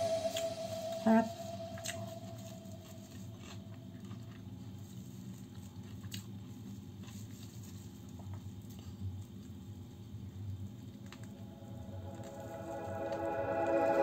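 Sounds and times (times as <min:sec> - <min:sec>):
low steady hum: 0:00.0 - 0:04.0, 0:11.1 - 0:14.0.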